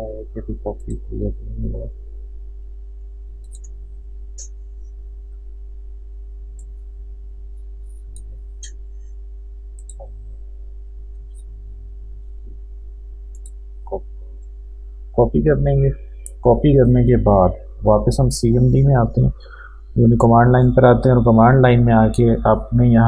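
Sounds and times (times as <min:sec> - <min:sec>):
low electrical hum: 0:00.0 - 0:23.0
computer mouse clicks: 0:03.4 - 0:03.8, 0:09.8 - 0:10.1, 0:13.3 - 0:13.6.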